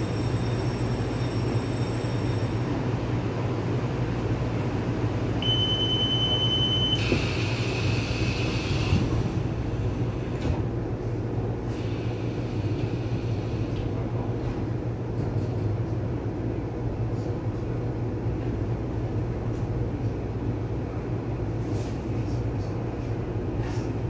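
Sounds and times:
short high steady tone: 5.4s - 7.2s
train wheels rumbling on rail: 6.8s - 24.0s.

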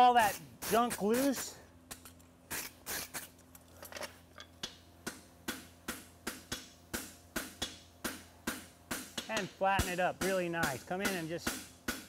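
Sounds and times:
hammer striking metal on anvil: 5.1s - 12.0s.

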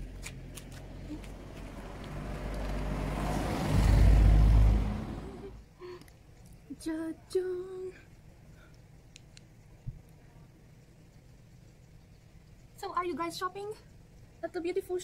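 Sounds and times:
car passing by: 0.8s - 5.6s.

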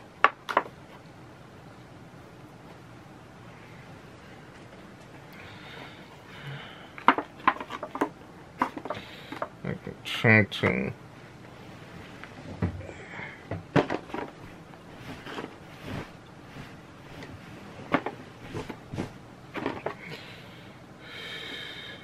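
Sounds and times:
clicks taps and rustles: 7.0s - 9.6s.

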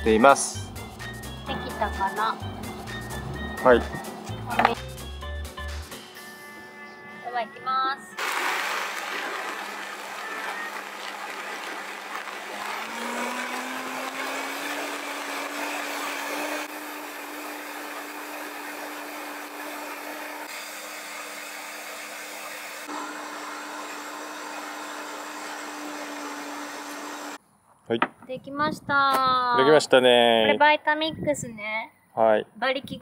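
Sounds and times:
blender running: 8.2s - 27.4s.

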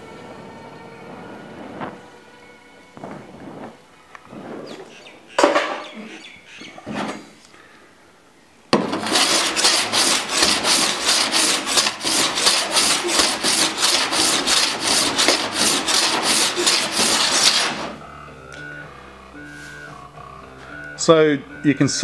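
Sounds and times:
file rasping on steel panel: 8.8s - 18.0s.

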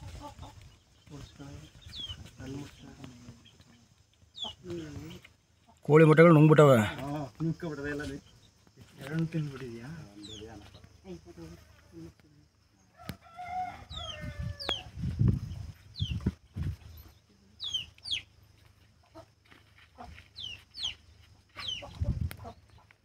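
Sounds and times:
chicks peeping: 0.0s - 5.8s, 13.9s - 23.0s.

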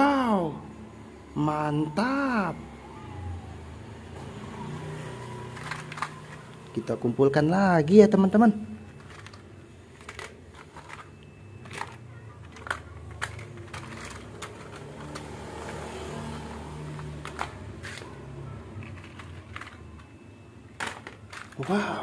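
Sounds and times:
low background hum: 0.0s - 22.0s
plastic toys clacking into basket: 5.4s - 6.9s, 8.9s - 22.0s.

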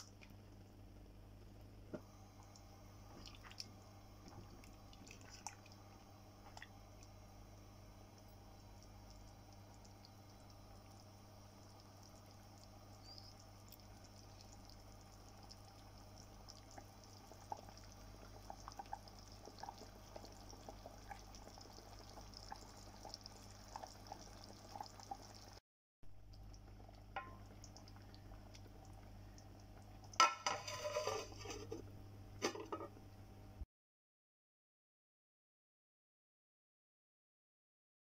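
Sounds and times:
low hum: 0.0s - 25.5s
curry bubbling in pot: 0.0s - 25.6s, 26.3s - 31.8s
metal lid clattering: 30.2s - 31.8s.

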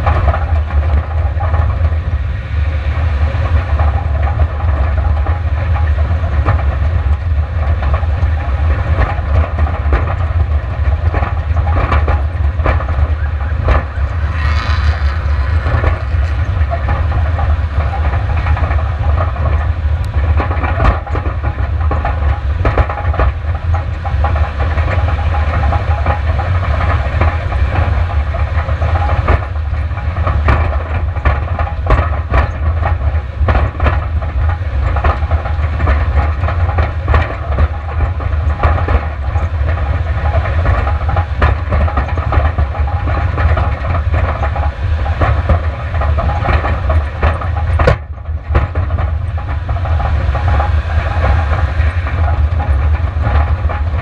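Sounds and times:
car engine low rumble: 0.0s - 54.0s
car rattling over rocks: 3.8s - 54.0s
vehicle passing with hissing rush: 13.9s - 16.6s.

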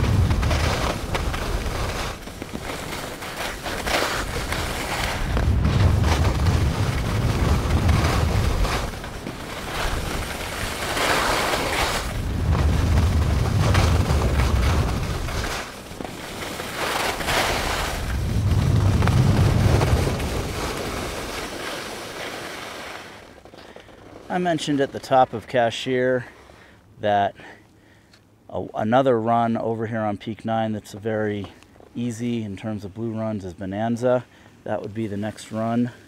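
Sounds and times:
wind buffeting microphone: 0.0s - 2.2s, 4.3s - 15.7s, 17.4s - 21.2s
skis scraping over snow: 0.0s - 26.3s, 34.7s - 36.0s.

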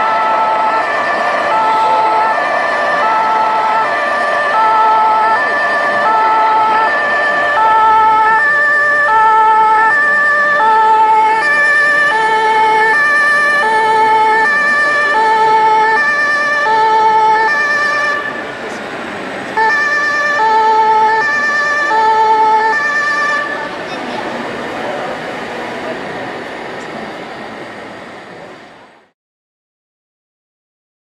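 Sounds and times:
electronic two-tone siren: 0.0s - 18.6s, 19.6s - 23.8s.

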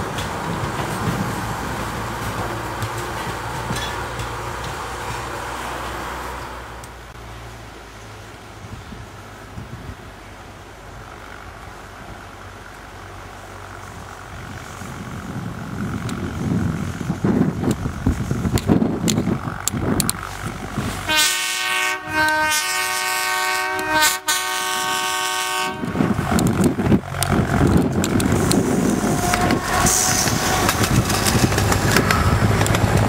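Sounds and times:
train rumbling and clattering past: 0.0s - 33.0s
locomotive horn: 21.0s - 26.2s, 29.0s - 31.0s.

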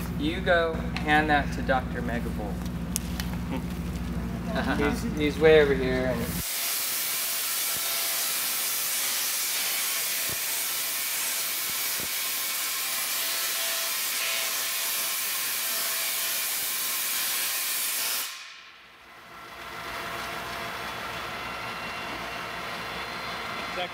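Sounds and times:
tesla coil hissing discharge: 6.2s - 18.7s
faint spark snaps: 10.2s - 12.3s.

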